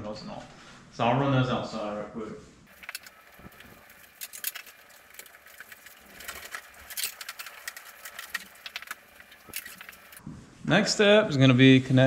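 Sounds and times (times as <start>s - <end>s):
clicks taps and rustles: 2.7s - 10.2s
hands handling wire: 2.7s - 10.2s.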